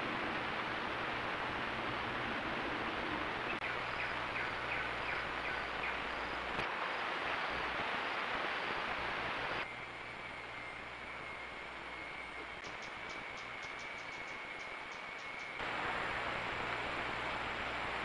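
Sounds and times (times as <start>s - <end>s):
outdoor ambient hiss: 0.0s - 18.0s.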